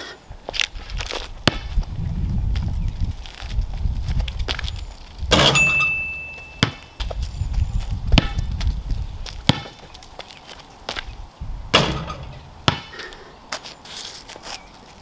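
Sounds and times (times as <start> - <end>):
wind rumble on microphone: 0.3 - 5.8, 7.0 - 9.6, 10.9 - 12.7
basketball bouncing on concrete: 1.4 - 1.8, 5.3 - 7.2, 8.0 - 9.9, 11.7 - 13.1
basketball clanking on metal hoop: 5.3 - 6.8, 11.8 - 12.9.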